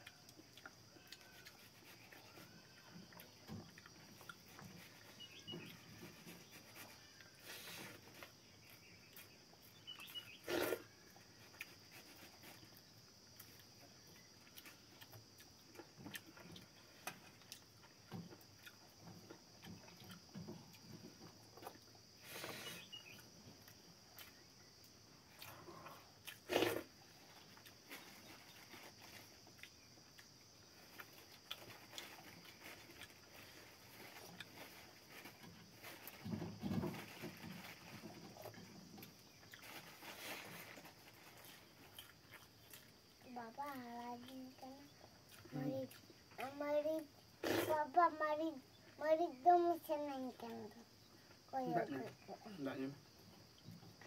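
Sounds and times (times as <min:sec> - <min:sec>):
soft chewing and lip smacks: 0:00.0 - 0:02.4, 0:03.1 - 0:04.8, 0:41.3 - 0:46.5.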